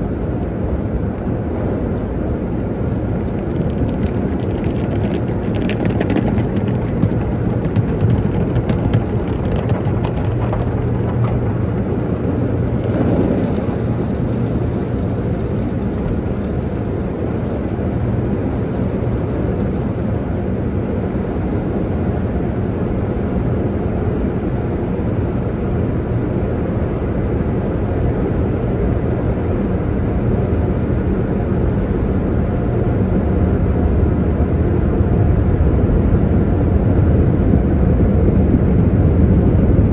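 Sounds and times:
car wash air blowers roaring: 0.0 - 39.8
water spray hitting windshield: 3.2 - 15.3.

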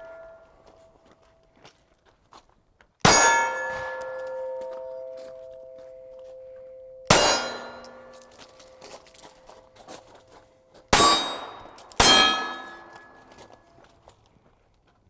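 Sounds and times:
steel plate clanging: 3.1 - 6.1, 6.8 - 10.1, 10.9 - 13.6
pistol shots: 7.1 - 8.3, 10.9 - 13.3.

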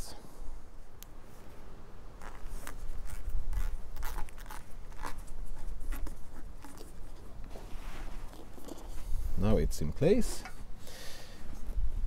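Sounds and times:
rustling and scraping of cables: 2.2 - 9.4.

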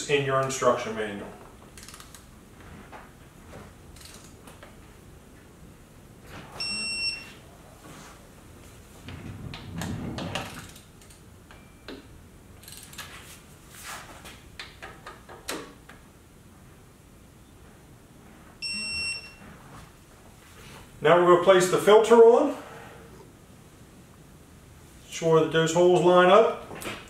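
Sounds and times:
wrench clicks and rattles: 1.8 - 2.2, 4.0 - 4.4, 12.6 - 13.1
torque wrench electronic beep: 6.6 - 7.4, 18.6 - 19.4.

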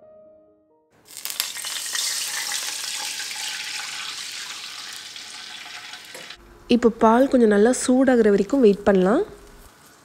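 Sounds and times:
soft background music: 0.0 - 1.0, 6.4 - 9.7
milk sizzling in a hot pan: 1.0 - 6.4.

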